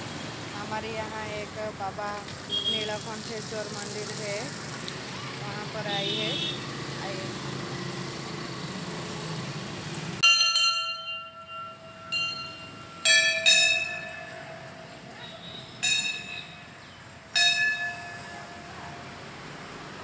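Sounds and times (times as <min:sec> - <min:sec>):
temple bell ringing: 0:10.2 - 0:19.3.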